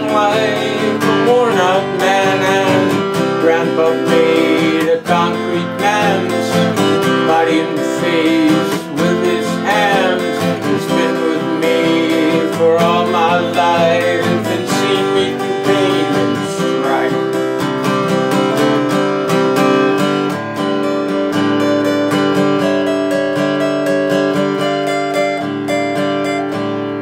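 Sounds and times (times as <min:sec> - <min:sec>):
man singing: 0:00.0 - 0:19.0
acoustic guitar: 0:00.0 - 0:27.0.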